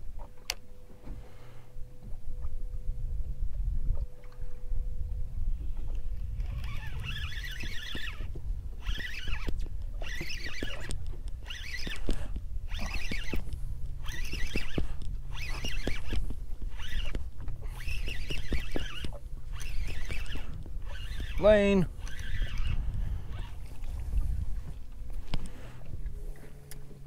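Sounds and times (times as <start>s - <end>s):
steady low rumble: 0.0s - 8.9s, 12.1s - 18.3s, 18.9s - 27.0s
spinning reel whirring: 5.6s - 25.9s.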